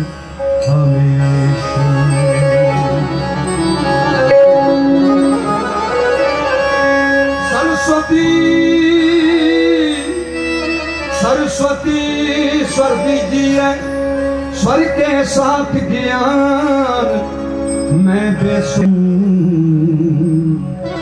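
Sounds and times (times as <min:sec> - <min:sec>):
man singing devotional song: 0:00.0 - 0:03.4, 0:07.4 - 0:21.0
steady drone accompaniment: 0:00.0 - 0:21.0.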